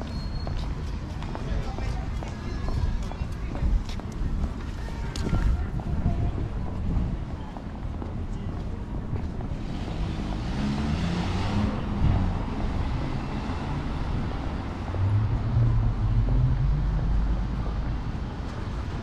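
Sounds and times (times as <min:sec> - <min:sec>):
cars driving past: 0:09.3 - 0:19.0.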